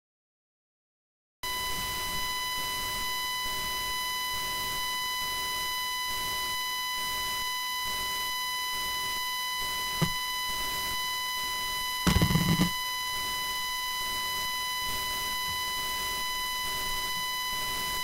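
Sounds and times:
microphone feedback tone: 8.7s - 18.0s.

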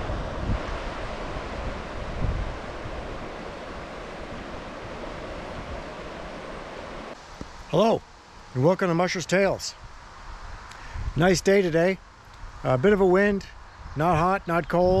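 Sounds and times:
wind buffeting the microphone: 0.0s - 7.2s, 9.7s - 11.5s, 12.3s - 15.0s.

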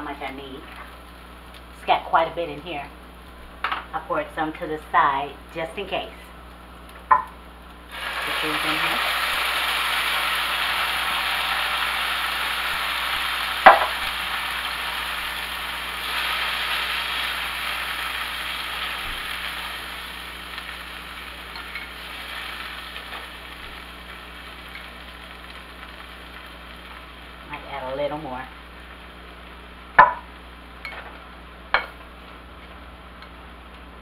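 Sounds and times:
food sizzling in a skillet: 5.3s - 32.9s
sharp knock: 30.0s - 30.2s.

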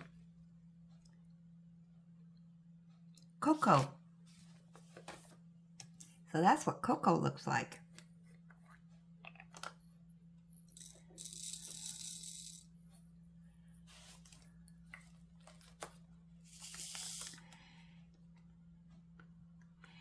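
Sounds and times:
steady low hum: 0.0s - 20.0s
plastic beads pouring into tray: 10.8s - 12.6s, 16.5s - 17.4s.

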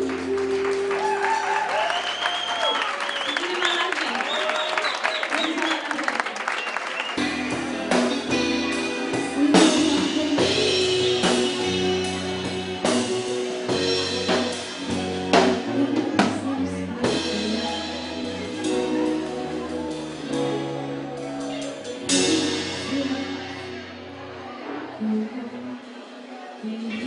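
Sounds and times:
pop-rock band playing: 0.0s - 2.0s, 7.1s - 27.0s
drum and cymbal hits: 7.2s - 24.2s.

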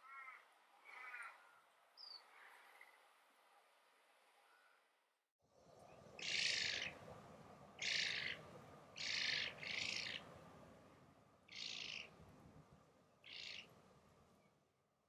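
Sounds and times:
steady low background noise: 0.0s - 15.0s
bird giving harsh rasping calls: 9.0s - 10.2s, 11.5s - 12.0s.

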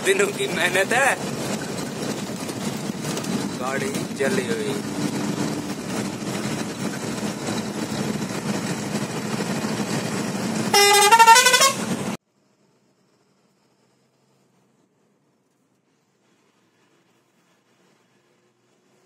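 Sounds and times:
truck engine and road drone: 0.0s - 19.0s
horn blaring rising notes: 10.6s - 12.0s.

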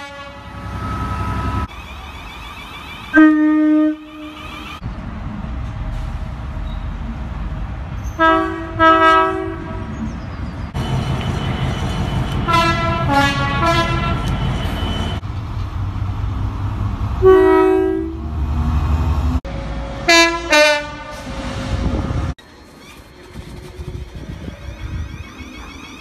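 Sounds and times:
locomotive two-tone air horn: 0.0s - 1.7s, 3.0s - 4.8s, 8.2s - 9.7s, 10.8s - 15.2s, 17.2s - 18.2s, 20.1s - 21.3s
locomotive engine rumble: 3.9s - 26.0s.

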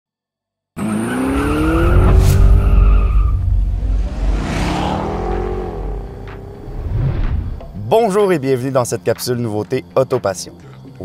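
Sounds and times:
engine revving: 0.8s - 7.8s.

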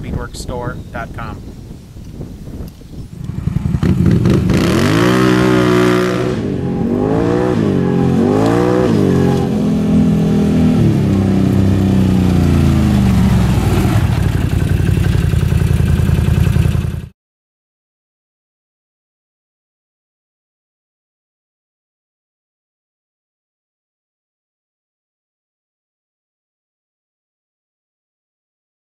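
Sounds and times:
atv engine revving: 3.2s - 17.1s.

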